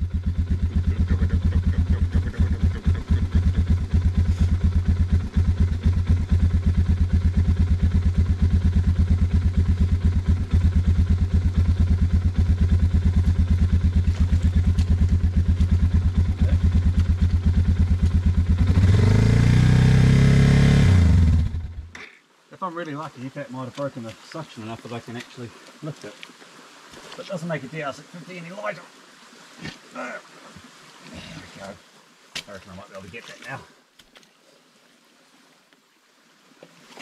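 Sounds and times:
motorcycle engine idling and revving: 0.0s - 21.9s
rear wheel spinning in mud: 8.4s - 18.3s.

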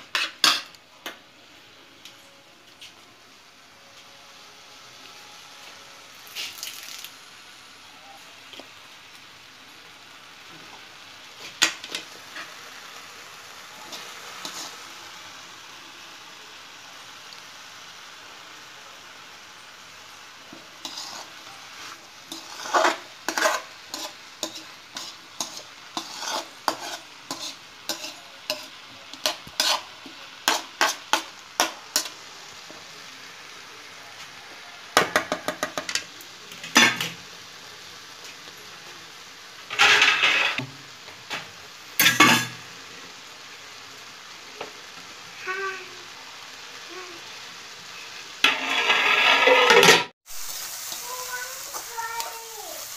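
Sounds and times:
vegetables sizzling in a pan: 0.0s - 52.9s
spatula scraping pan: 20.8s - 32.2s, 39.7s - 40.7s, 48.4s - 50.1s.

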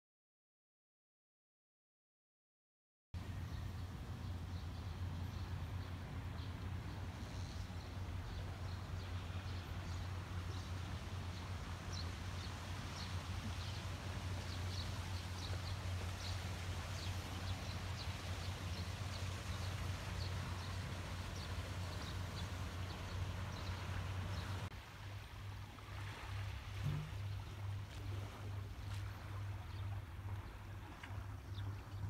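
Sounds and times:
small birds chirping: 14.4s - 24.7s.

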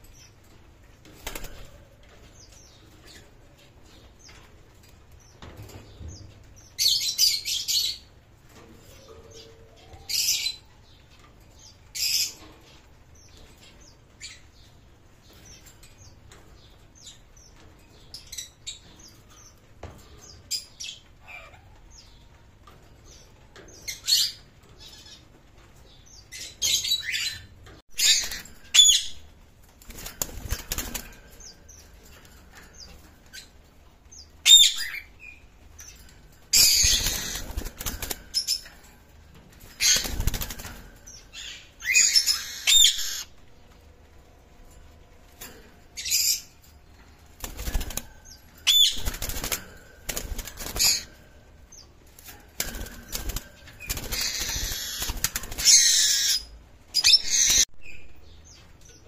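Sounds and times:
wings flapping in cage: 0.6s - 6.4s, 28.0s - 43.4s, 45.3s - 56.4s
parakeets screeching: 21.2s - 21.7s, 36.6s - 38.6s, 53.8s - 57.6s.

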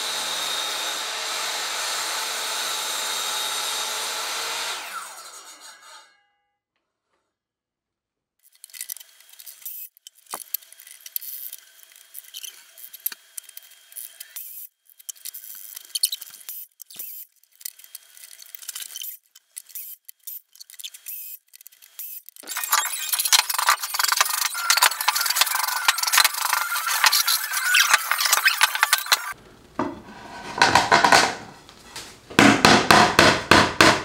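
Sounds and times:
wooden board sliding on saw table: 29.8s - 32.2s.

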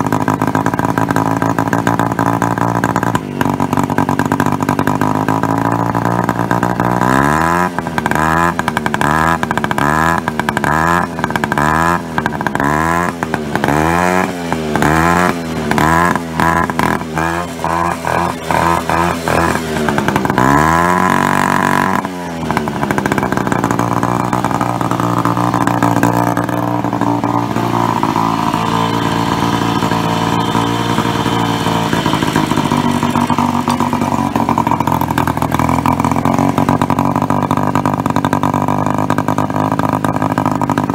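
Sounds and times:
moped engine revving and idling: 0.0s - 40.9s.

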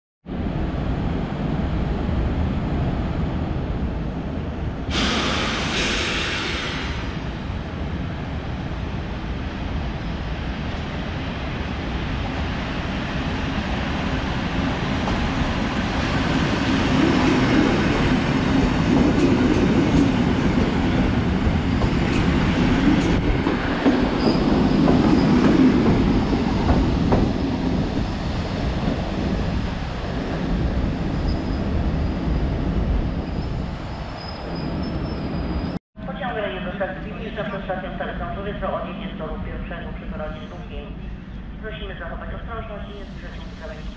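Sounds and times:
train wheels rumbling on rails: 10.6s - 35.8s.

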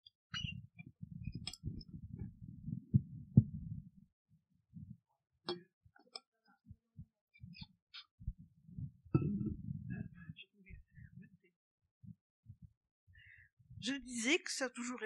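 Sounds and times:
bottle clicks and knocks: 9.2s - 9.6s.

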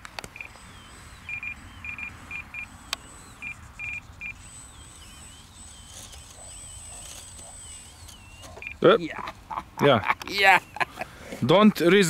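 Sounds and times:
transmitter beeping in high pips: 0.3s - 9.0s.

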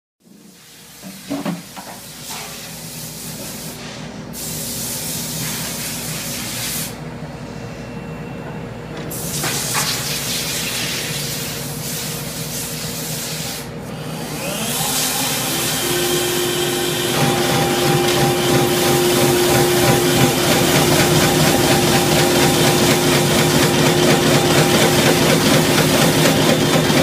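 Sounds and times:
machine mechanical hum: 0.3s - 27.0s
whine rising in pitch: 14.4s - 27.0s.

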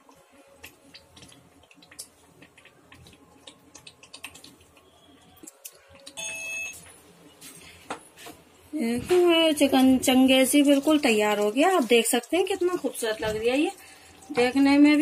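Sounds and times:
curry popping in pot: 0.6s - 5.6s.

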